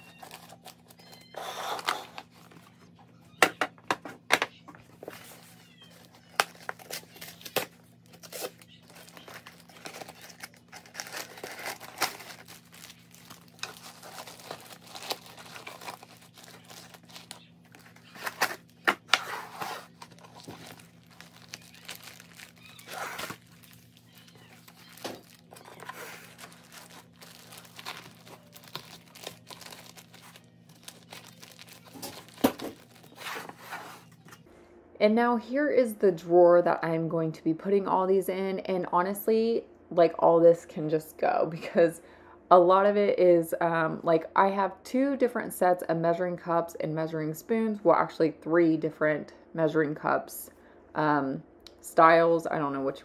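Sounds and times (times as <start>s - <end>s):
plastic bags crinkling: 0.0s - 2.9s, 4.9s - 33.8s.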